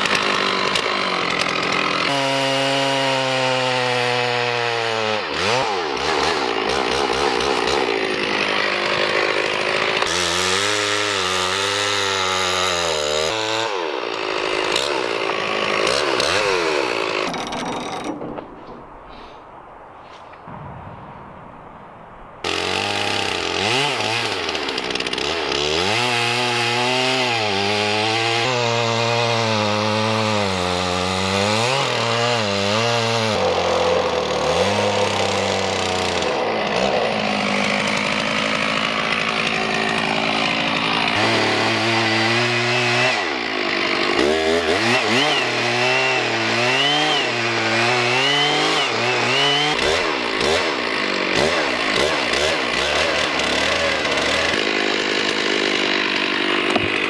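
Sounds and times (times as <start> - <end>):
chainsaw cutting log: 0.0 - 19.3, 22.4 - 57.0.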